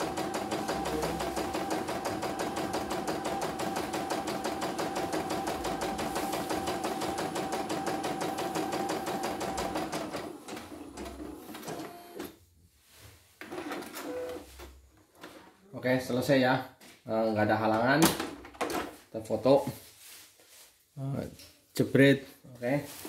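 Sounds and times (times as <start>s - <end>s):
embroidery machine stitching: 0.0s - 12.3s.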